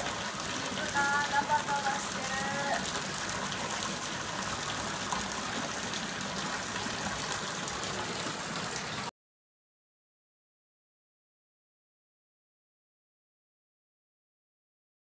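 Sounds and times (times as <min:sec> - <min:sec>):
water rushing and splashing: 0:00.0 - 0:09.1.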